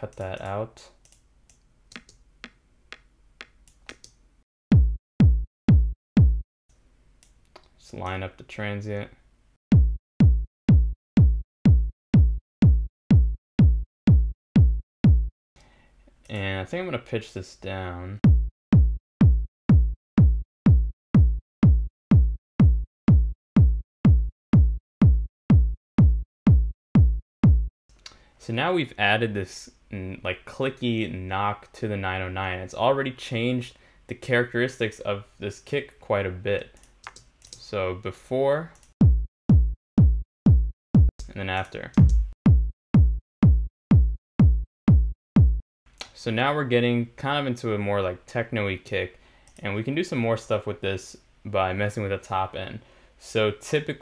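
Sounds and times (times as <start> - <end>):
faint mouse clicks: 0.1 - 4.2
drum machine kick hits: 4.7 - 6.4, 9.7 - 15.3, 18.2 - 27.7, 39.0 - 41.3, 42.0 - 45.6.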